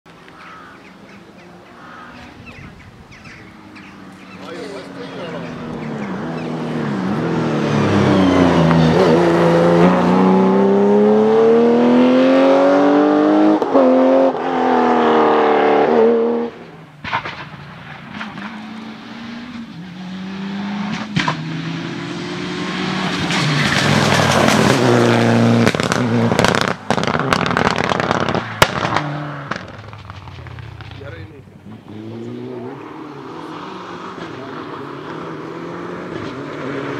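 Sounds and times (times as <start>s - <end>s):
distant car engine: 0.1s - 36.9s
turbocharged car engine approaching: 0.2s - 36.9s
rally car engine at full throttle: 3.6s - 36.9s
sharp cracks: 17.0s - 18.6s, 25.6s - 31.0s.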